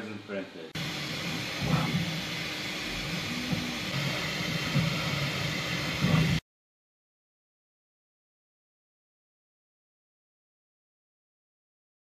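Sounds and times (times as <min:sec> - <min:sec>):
printer fan whoosh: 0:00.8 - 0:06.4
stepper motors whirring: 0:00.8 - 0:06.4.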